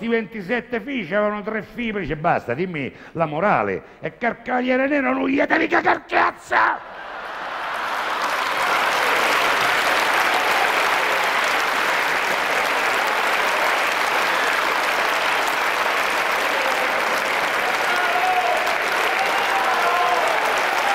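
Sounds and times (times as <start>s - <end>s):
audience applauding: 6.9s - 20.9s.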